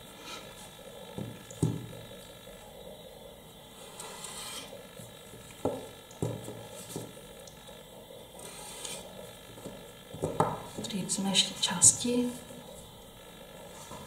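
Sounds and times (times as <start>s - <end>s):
pottery tool scraping clay: 3.7s - 7.2s, 8.3s - 12.8s.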